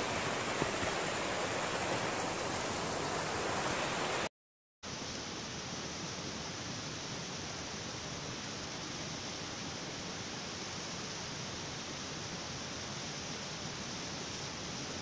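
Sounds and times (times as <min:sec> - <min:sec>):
mountain stream rushing: 0:00.0 - 0:04.3.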